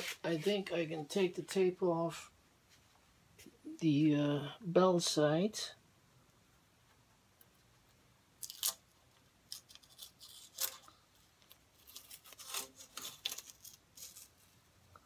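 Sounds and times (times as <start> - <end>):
tape ripping off wood: 11.8 - 14.3.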